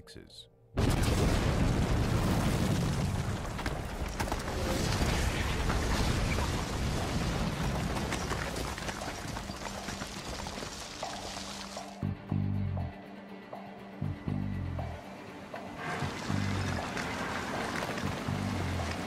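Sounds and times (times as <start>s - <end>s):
falling debris impacts: 0.8s - 12.0s.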